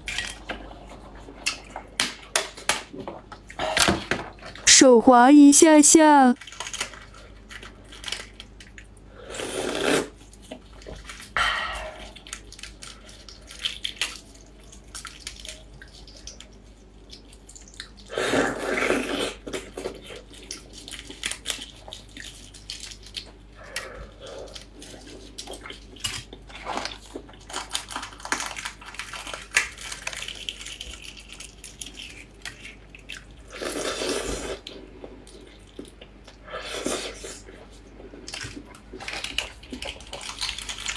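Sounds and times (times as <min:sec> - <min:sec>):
chewing: 0:06.4 - 0:40.9
wet slurps: 0:09.2 - 0:10.2, 0:17.4 - 0:20.0
fingers peeling wet eggs: 0:12.0 - 0:40.9.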